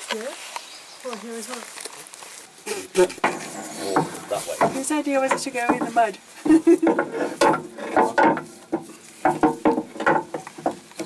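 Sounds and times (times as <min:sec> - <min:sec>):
metal knocks and scrapes: 0:02.7 - 0:11.0.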